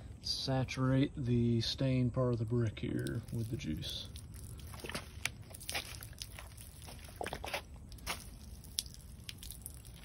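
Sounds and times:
liquid squirting onto brick: 3.0s - 10.0s.

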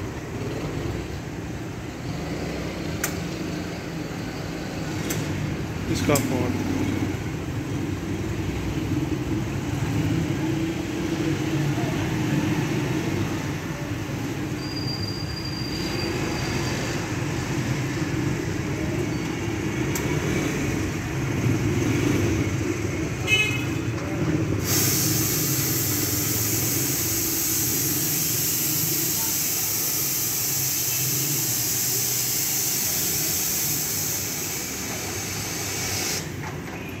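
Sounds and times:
espresso steam wand hissing: 24.6s - 36.3s.

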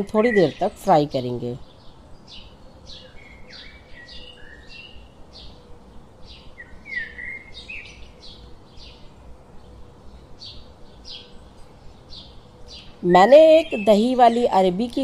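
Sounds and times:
small birds chirping: 0.0s - 15.0s
whistled bird notes: 2.3s - 5.6s, 6.3s - 9.0s.

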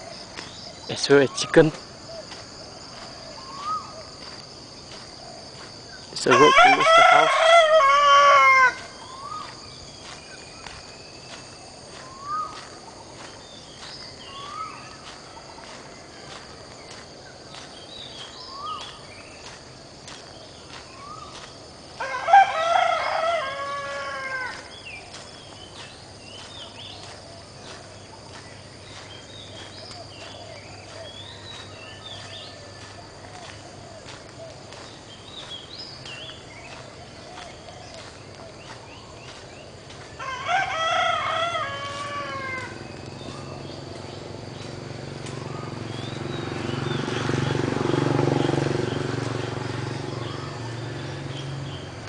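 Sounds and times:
high insect drone: 0.0s - 52.0s
rooster crowing: 6.2s - 9.4s, 22.0s - 24.8s, 40.2s - 42.9s.

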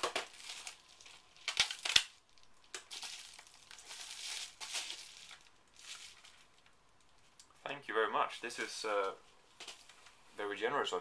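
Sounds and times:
packaging crinkling: 0.0s - 7.4s.

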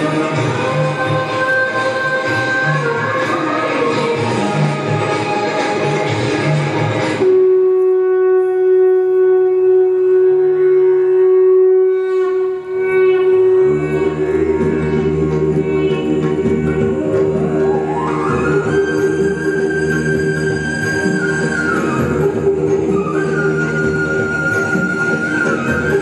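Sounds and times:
dance music: 0.0s - 7.3s, 13.7s - 20.2s
held flute note: 0.0s - 26.0s.

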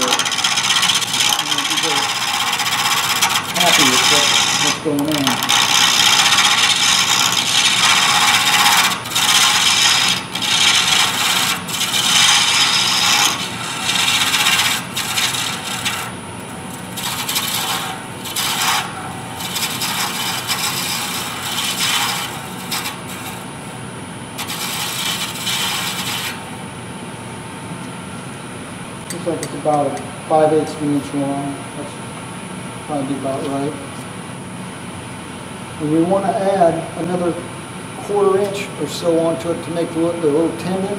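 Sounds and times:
lathe tool cutting wood: 0.0s - 23.5s, 24.4s - 26.6s
wood lathe humming: 0.0s - 27.0s.

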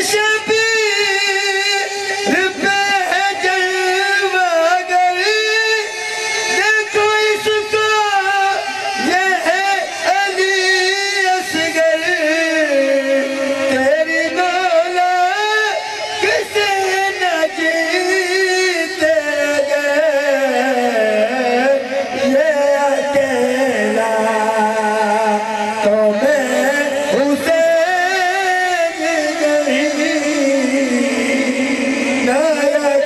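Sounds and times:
man chanting through microphone: 0.0s - 33.0s.

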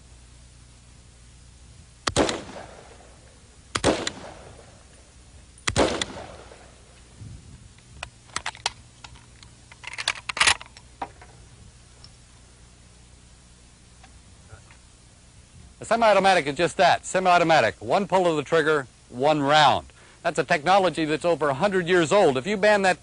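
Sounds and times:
rifle shots with echo: 2.0s - 5.0s, 5.6s - 6.9s.

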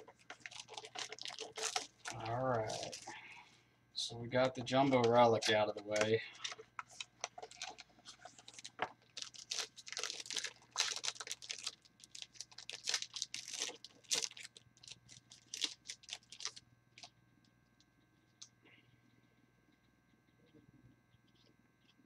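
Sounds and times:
cards rustling and shuffling: 0.0s - 3.2s, 4.4s - 14.5s.

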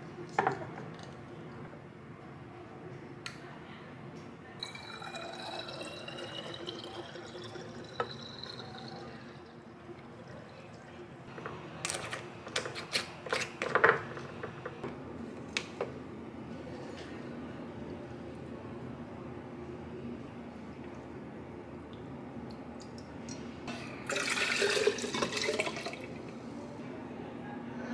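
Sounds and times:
glassware clinking and knocking: 4.6s - 9.0s
liquid pouring into glass bottle: 4.6s - 10.7s, 24.1s - 26.2s.

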